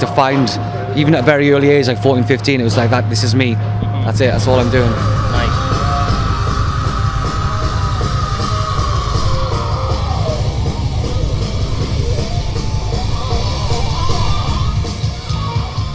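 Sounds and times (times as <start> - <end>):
heavy metal band playing live: 4.3 - 15.9.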